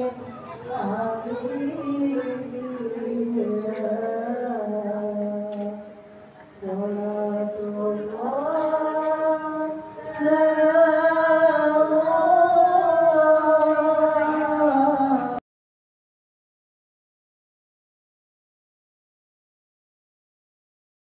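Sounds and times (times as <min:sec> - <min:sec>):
slow chant-like singing: 0:00.0 - 0:15.4.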